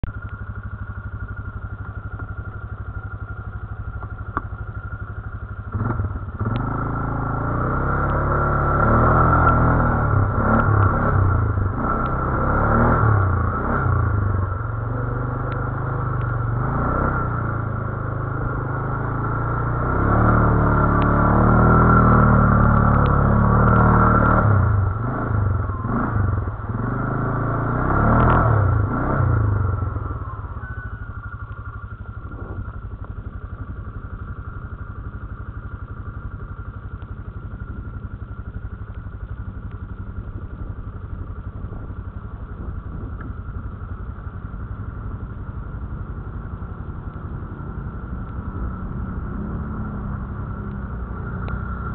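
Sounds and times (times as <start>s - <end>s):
quad engine revving: 5.7s - 31.0s.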